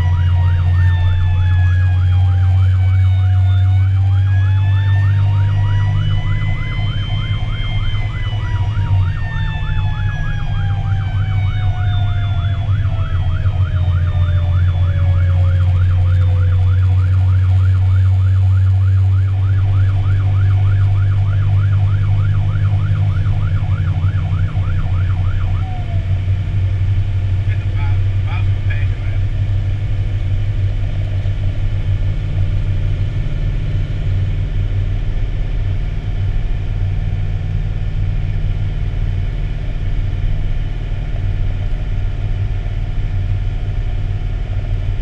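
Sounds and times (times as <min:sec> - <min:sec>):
lower siren tone winding: 0:00.0 - 0:27.0
electronic siren yelp: 0:00.0 - 0:34.7
truck engine droning: 0:00.0 - 0:45.0.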